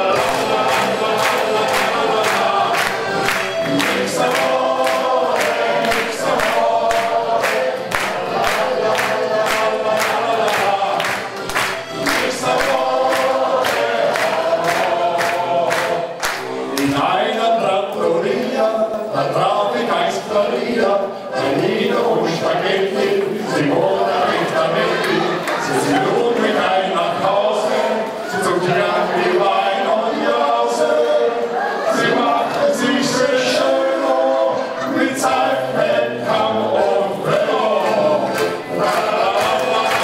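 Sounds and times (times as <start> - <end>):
hand claps on a beat: 0.0 - 17.2, 37.3 - 40.0
accordion and band accompaniment: 0.0 - 31.5, 32.1 - 40.0
men's choir singing: 0.0 - 40.0.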